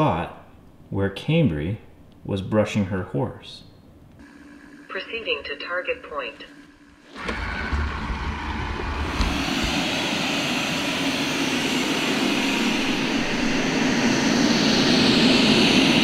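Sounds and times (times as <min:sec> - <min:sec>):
robot vacuum fan noise: 0:04.2 - 0:16.0.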